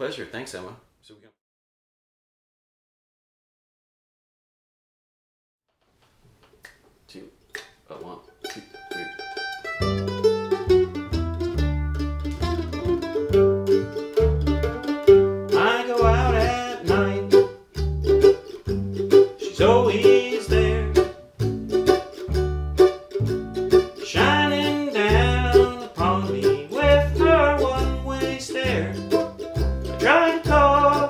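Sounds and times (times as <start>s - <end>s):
upright bass plucking: 7.4s - 31.0s
mandolin picking: 7.9s - 31.0s.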